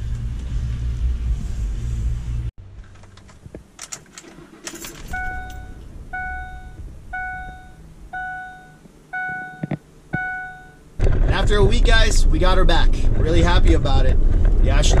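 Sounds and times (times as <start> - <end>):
jangling clicks: 2.8 - 5.7
car dashboard warning chime: 5.0 - 10.9.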